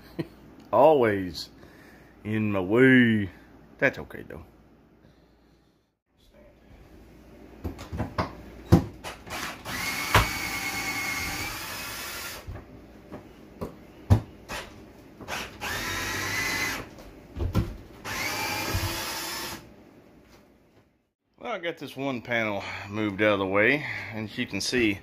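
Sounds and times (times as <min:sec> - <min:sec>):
cordless drill whining: 0:09.3 - 0:12.5, 0:15.3 - 0:16.9, 0:18.0 - 0:19.7.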